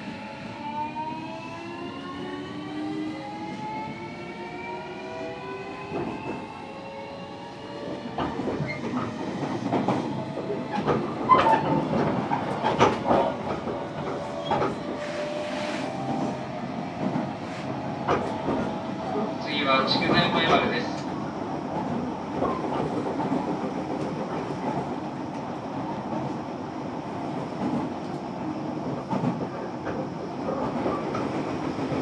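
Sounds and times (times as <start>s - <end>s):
train wheels on rail: 0.0s - 32.0s
rail joint clacks: 8.1s - 26.4s.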